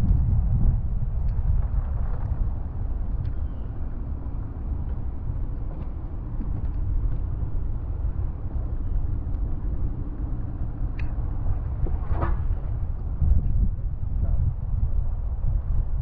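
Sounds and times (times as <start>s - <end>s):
faint engine hum: 0.0s - 16.0s
wind noise: 0.0s - 16.0s.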